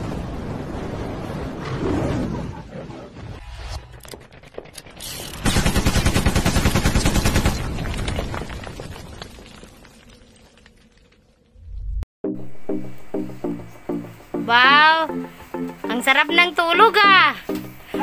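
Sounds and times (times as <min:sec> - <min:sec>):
machine-gun fire: 0:05.4 - 0:07.8
rumble of wall collapsing: 0:07.5 - 0:12.0.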